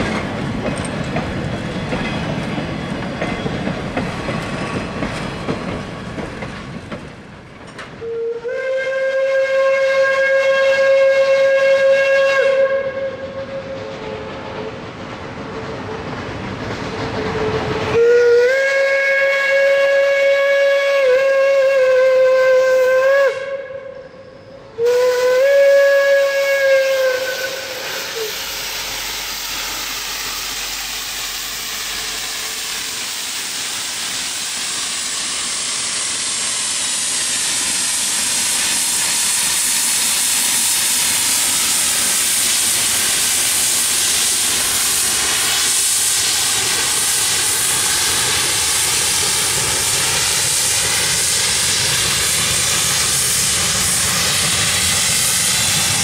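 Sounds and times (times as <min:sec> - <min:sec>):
steam locomotive rush of steam: 0:00.0 - 0:56.0
steam whistle: 0:08.0 - 0:14.4, 0:17.2 - 0:32.9, 0:38.8 - 0:48.3.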